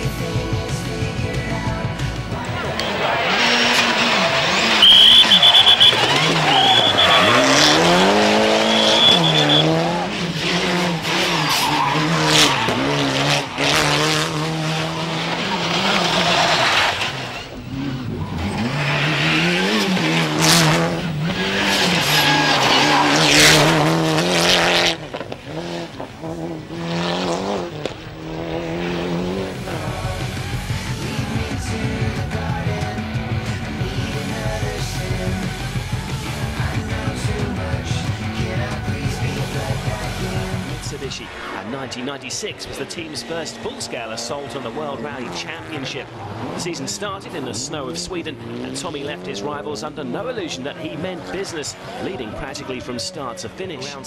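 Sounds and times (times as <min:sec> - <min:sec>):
rally car engine revving: 0:00.0 - 0:54.0
exhaust cracks: 0:02.6 - 0:09.6, 0:10.3 - 0:30.9
tyres squealing: 0:02.7 - 0:09.8, 0:10.4 - 0:14.0, 0:15.0 - 0:23.9.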